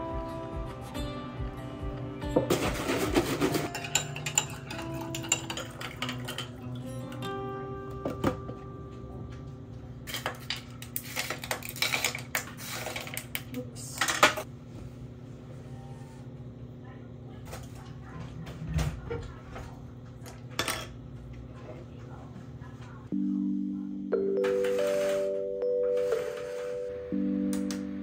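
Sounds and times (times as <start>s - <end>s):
ice cubes clinking in a mug: 3.7s - 6.7s.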